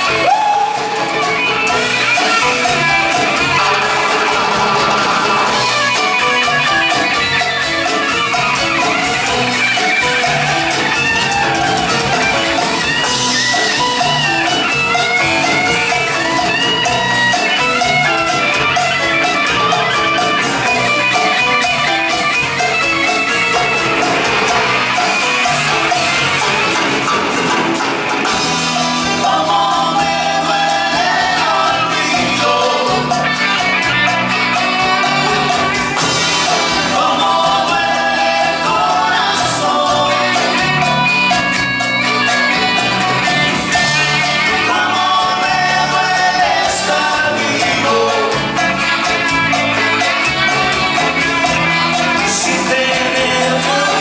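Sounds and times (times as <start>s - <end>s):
person singing: 0.0s - 12.7s, 28.8s - 41.6s, 43.7s - 54.0s
live band playing: 0.0s - 54.0s.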